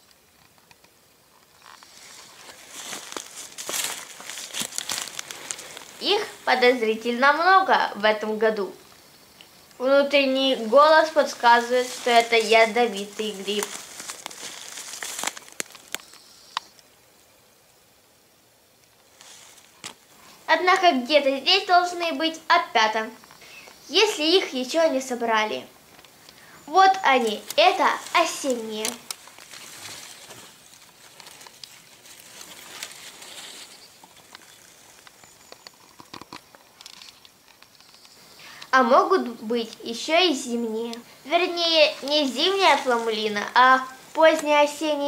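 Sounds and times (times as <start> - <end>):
twigs snapping: 0.5 - 6.5, 10.8 - 16.8, 25.9 - 38.1, 42.0 - 44.6
footsteps rustling dry leaves: 1.5 - 7.3, 9.9 - 16.2, 19.0 - 20.5, 26.2 - 35.9, 40.4 - 45.0.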